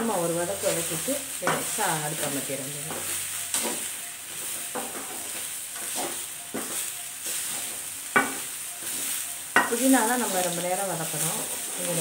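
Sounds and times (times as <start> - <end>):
food sizzling in oil: 0.0 - 12.0
spatula scraping pan: 0.6 - 12.0.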